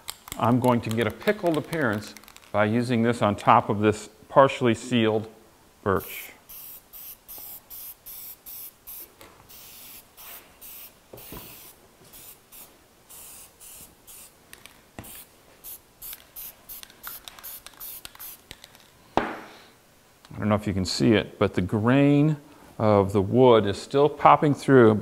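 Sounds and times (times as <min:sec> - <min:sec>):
spray can hissing bursts: 0:06.1 - 0:14.4, 0:15.0 - 0:18.6.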